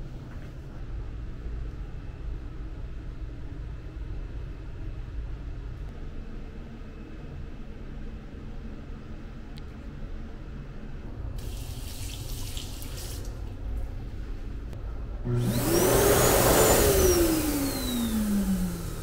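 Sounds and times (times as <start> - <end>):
hand dryer blowing: 15.3 - 19.0.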